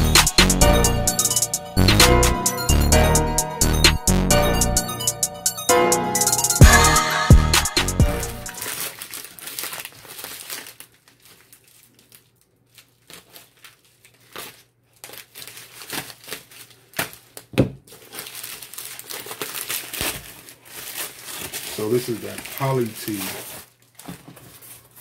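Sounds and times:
plastic mailer crinkling: 0:08.5 - 0:25.0.

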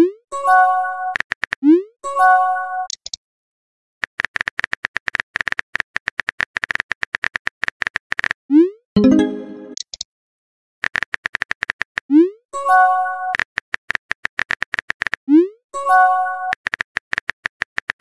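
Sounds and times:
rapid keyboard tapping clicks: 0:01.2 - 0:01.6, 0:04.0 - 0:08.4, 0:10.8 - 0:12.0, 0:13.4 - 0:15.2, 0:16.5 - 0:18.0
multi-tone message chime: 0:09.0 - 0:09.8.

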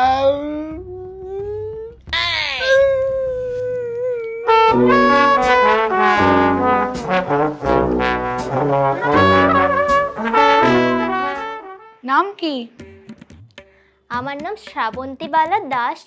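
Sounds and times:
brass band playing: 0:04.5 - 0:12.0
drum hits: 0:04.7 - 0:11.8.

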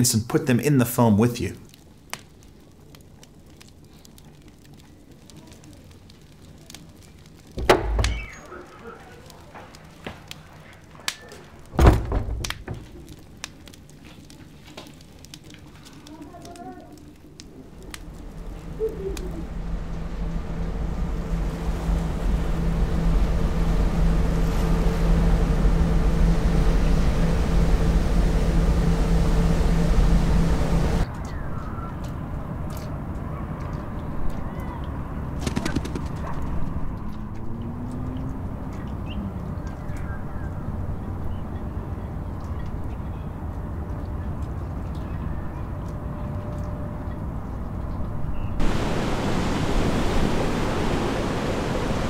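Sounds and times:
wood fire crackling: 0:01.0 - 0:31.2, 0:48.6 - 0:52.0
loud thud: 0:07.6 - 0:08.3, 0:11.8 - 0:12.8
low steady rumble: 0:17.6 - 0:31.1
ship engine humming: 0:17.8 - 0:31.1, 0:48.6 - 0:52.0
rushing wind and water: 0:19.4 - 0:31.1, 0:47.2 - 0:52.0.

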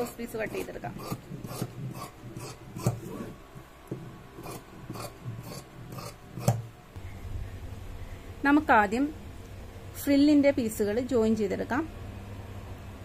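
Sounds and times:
scissors cutting cloth: 0:00.0 - 0:03.3, 0:04.4 - 0:06.6.

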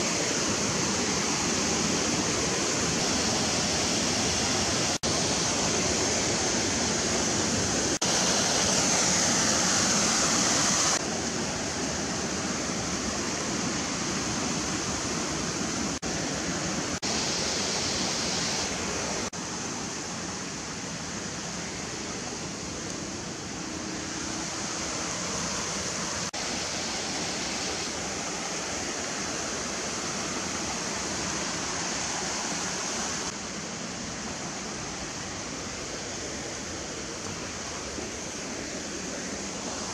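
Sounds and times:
fast-flowing water rushing: 0:00.0 - 0:39.9.

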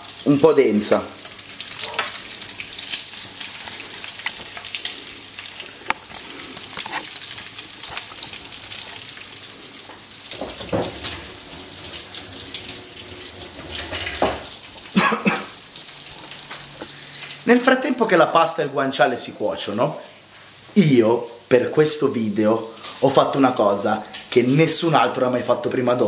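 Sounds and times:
meat sizzling in a pan: 0:00.0 - 0:17.5.

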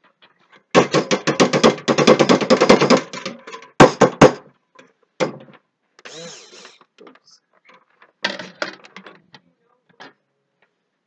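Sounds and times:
sharp knocks: 0:00.7 - 0:04.5, 0:05.2 - 0:05.6.

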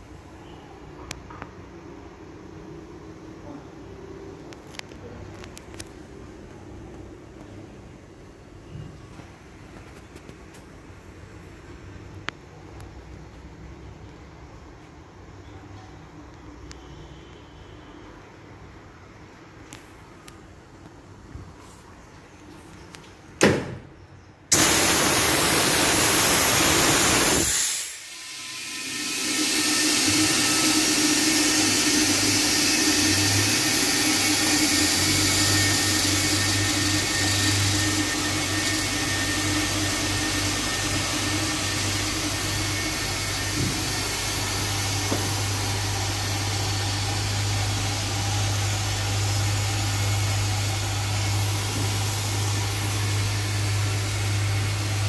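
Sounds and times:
loud rush of air: 0:24.5 - 0:33.3
vacuum pump hissing and humming: 0:24.5 - 0:55.0.

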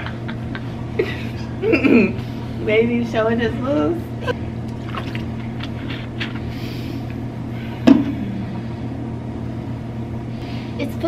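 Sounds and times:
low room hum: 0:00.0 - 0:11.0.

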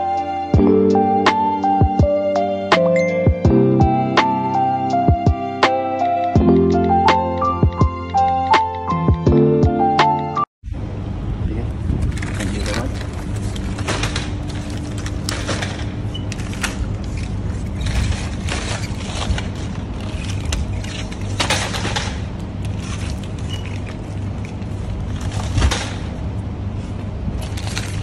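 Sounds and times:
steady low hum: 0:10.6 - 0:28.0
plastic wrap crinkling: 0:12.0 - 0:26.2, 0:27.4 - 0:28.0.

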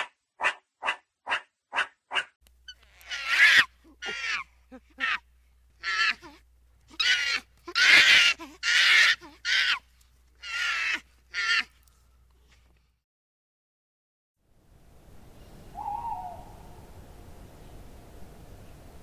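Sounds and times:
harsh animal calls: 0:02.7 - 0:05.2, 0:05.8 - 0:09.8.

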